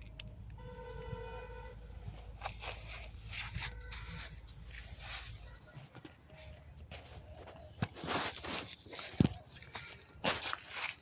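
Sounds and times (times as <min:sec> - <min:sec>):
constant low rumble: 0:00.0 - 0:10.9
horn tone: 0:00.6 - 0:01.9.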